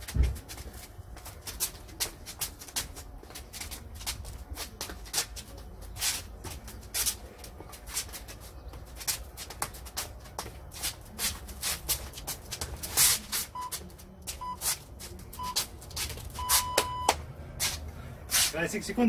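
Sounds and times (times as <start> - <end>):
shoes scuffing on stone tiles: 0.0 - 17.0, 17.6 - 18.8
round timer beeps: 13.6 - 13.8, 15.4 - 15.6, 16.4 - 17.2.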